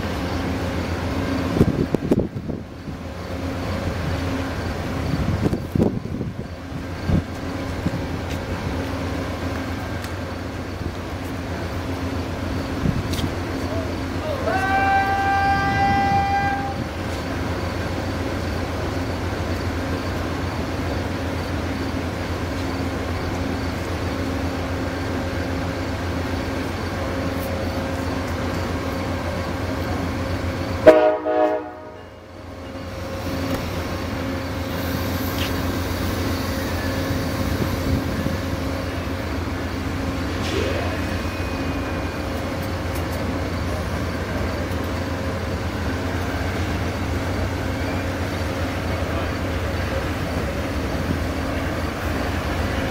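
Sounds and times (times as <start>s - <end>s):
diesel locomotive droning: 0.0s - 52.9s
train horn blast: 14.4s - 16.9s, 30.8s - 32.2s
horn-like tone: 30.8s - 32.2s.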